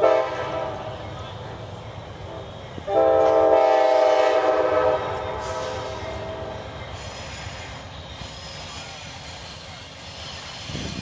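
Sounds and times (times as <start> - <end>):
locomotive air horn chord: 0.0 - 0.9, 2.3 - 6.6
train rumble: 0.0 - 11.0.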